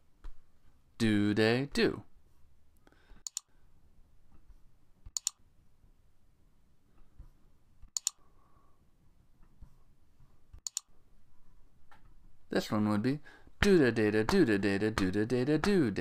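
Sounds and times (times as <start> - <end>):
computer mouse double clicks: 10.6 - 10.9.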